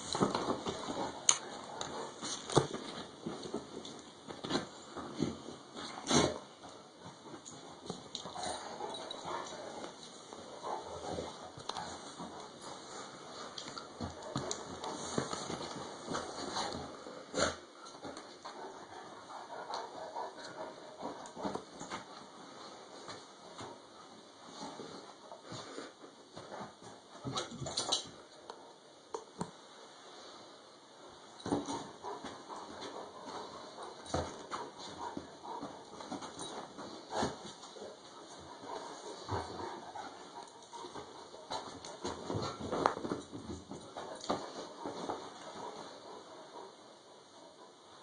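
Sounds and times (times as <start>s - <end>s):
dog paws thumping on mattress: 0.0s - 17.0s, 31.3s - 46.0s
bedding rustling: 0.0s - 28.8s, 29.5s - 48.0s.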